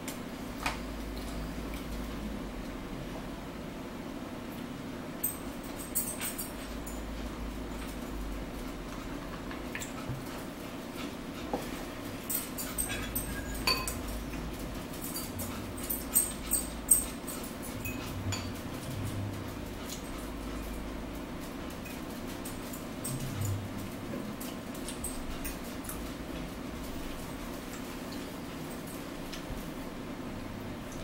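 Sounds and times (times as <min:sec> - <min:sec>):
low steady hum: 0:00.0 - 0:31.0
forks clinking on plates: 0:12.2 - 0:20.8, 0:21.7 - 0:26.1.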